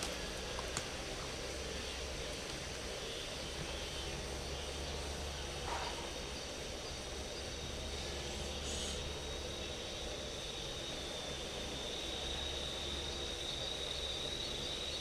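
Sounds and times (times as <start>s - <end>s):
low rumble and hiss: 0.0s - 15.0s.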